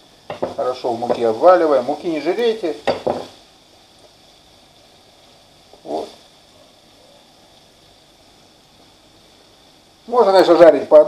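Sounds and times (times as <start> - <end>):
fish deep-frying in hot oil: 0.0 - 11.0
short vocal sound: 5.8 - 6.2.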